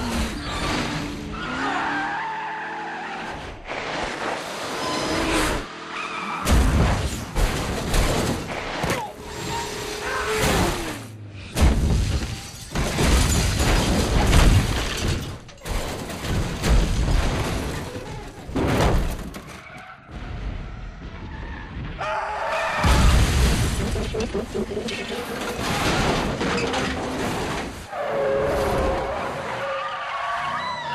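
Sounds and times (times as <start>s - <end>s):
tyres skidding: 17.5s - 30.9s.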